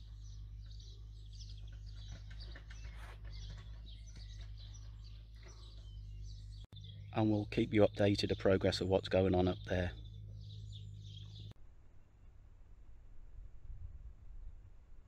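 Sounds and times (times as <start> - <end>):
small birds chirping: 0.0 - 11.6
low steady rumble: 4.4 - 15.0.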